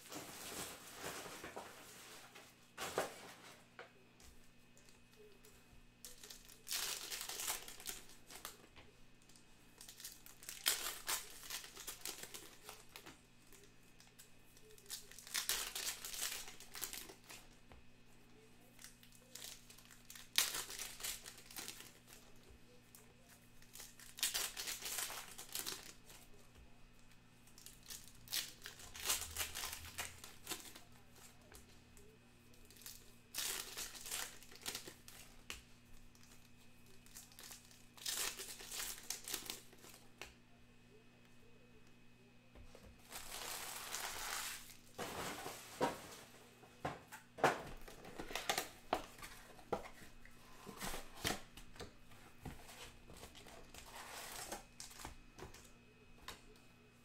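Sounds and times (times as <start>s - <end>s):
foil wrappers crinkling and tearing: 0.0s - 3.4s, 6.0s - 8.7s, 9.8s - 17.6s, 18.3s - 26.4s, 27.5s - 40.1s, 43.0s - 45.9s, 47.8s - 55.7s.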